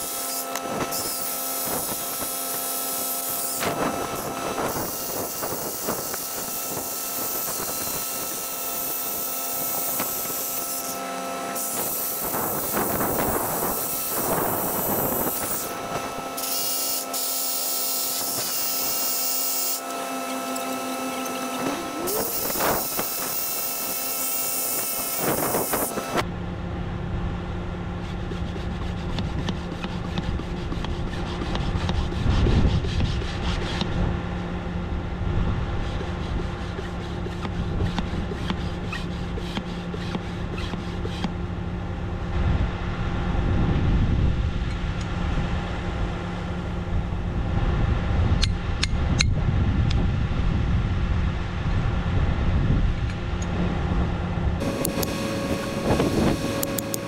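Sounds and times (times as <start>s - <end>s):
hammer drill boring into concrete: 16.4s - 26.2s.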